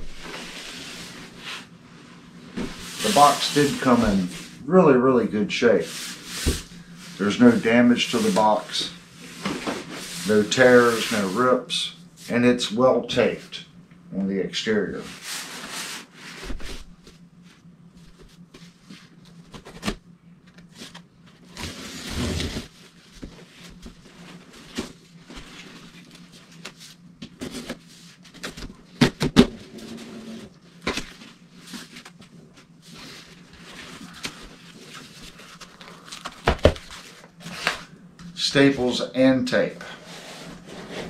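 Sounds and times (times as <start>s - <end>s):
steady low hum: 0.0s - 41.0s
cardboard flaps scraping: 2.5s - 4.5s, 20.6s - 37.9s, 39.8s - 41.0s.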